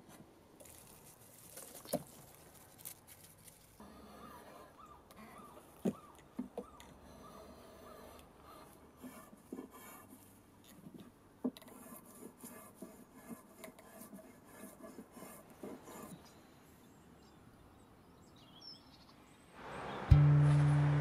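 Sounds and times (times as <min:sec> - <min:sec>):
drawknife shaving wood: 0:07.4 - 0:11.0, 0:11.6 - 0:16.2.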